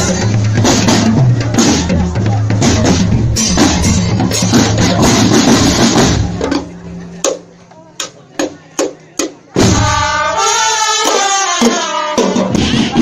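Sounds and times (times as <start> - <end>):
bass drums: 0.0 - 7.0
snare drums: 0.0 - 7.4, 8.0 - 13.0.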